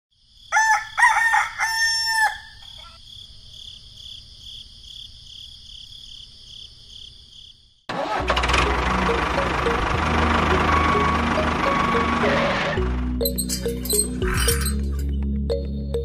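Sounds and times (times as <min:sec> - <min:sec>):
rooster crowing: 0:00.5 - 0:03.0.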